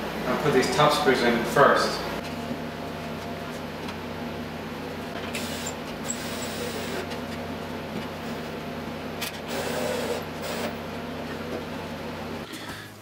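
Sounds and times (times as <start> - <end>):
low background hum: 0.0 - 13.0.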